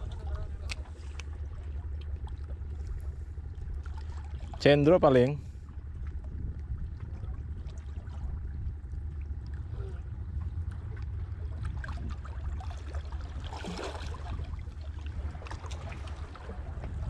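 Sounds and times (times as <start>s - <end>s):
low rumble: 0.0s - 17.0s
water sloshing and lapping: 0.0s - 17.0s
brief splash: 11.6s - 14.6s.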